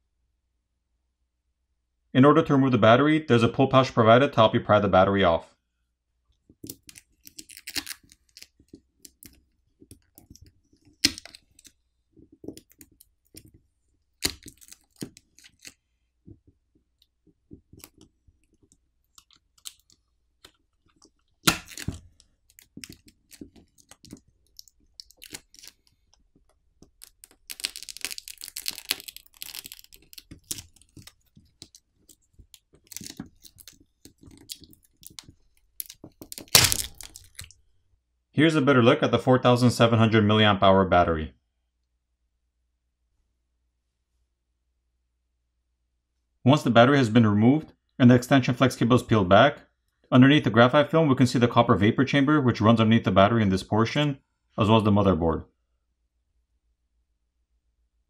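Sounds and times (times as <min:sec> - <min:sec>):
plastic and film clicking and crackling: 0:06.5 - 0:37.6
adhesive crackling and tearing: 0:06.6 - 0:15.8, 0:17.5 - 0:37.6.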